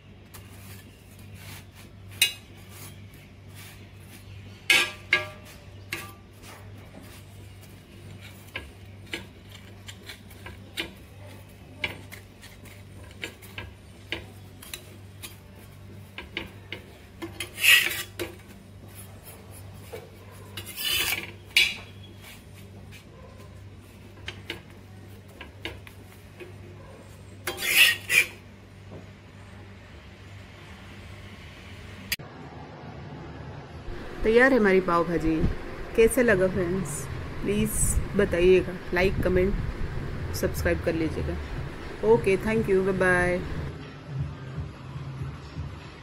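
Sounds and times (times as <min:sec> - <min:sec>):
metal spatula scraping on griddle: 0:00.3 - 0:28.5.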